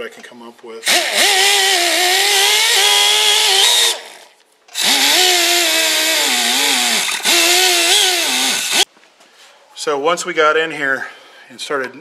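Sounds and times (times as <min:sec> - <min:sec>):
die grinder whining: 0:00.8 - 0:08.9.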